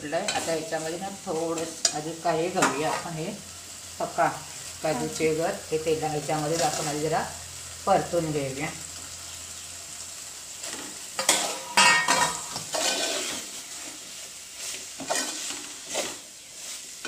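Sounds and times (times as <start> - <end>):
food sizzling in oil: 0.0 - 17.0
spoon scraping in pot: 11.2 - 13.6, 14.6 - 16.2.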